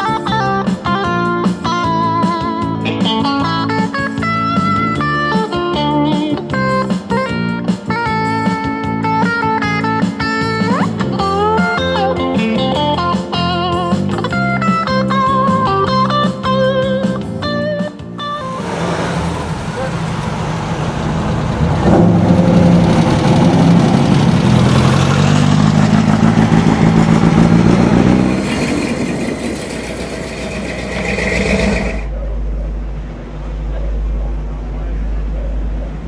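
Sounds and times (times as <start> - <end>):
electric guitar lead with string bends: 0.0 - 28.4.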